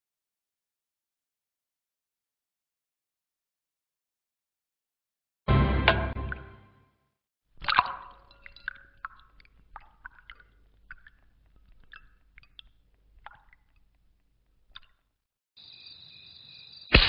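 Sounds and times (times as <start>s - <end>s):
small clicks and drips in glass: 7.6s - 15.2s.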